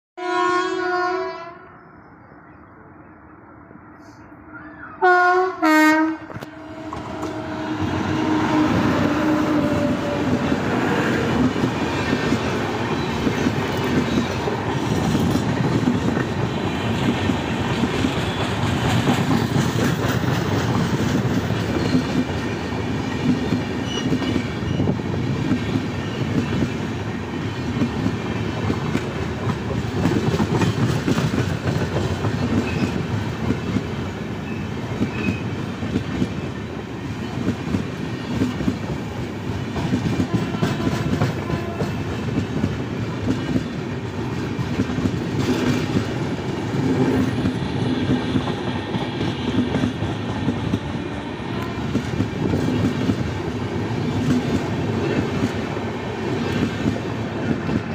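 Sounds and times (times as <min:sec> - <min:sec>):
locomotive horn blasts: 0:00.2 - 0:01.7, 0:05.0 - 0:10.3, 0:40.2 - 0:42.0, 0:50.7 - 0:52.0
train wheels clacking over rail joints: 0:08.7 - 0:34.0, 0:37.2 - 0:51.0.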